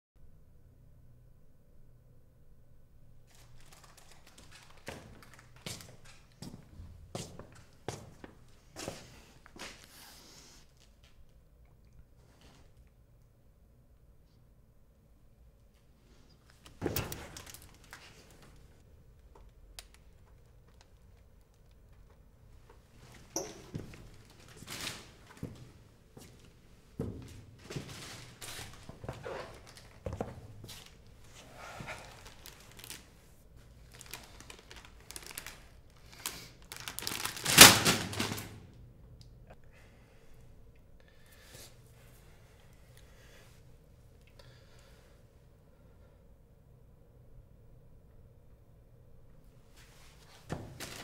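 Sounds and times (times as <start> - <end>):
small clicks and rustles: 3.3 - 6.6.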